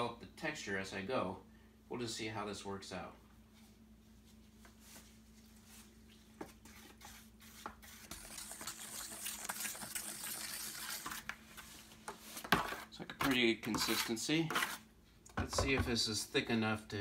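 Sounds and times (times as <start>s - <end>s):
wet mud stirred with stick: 6.5s - 11.3s.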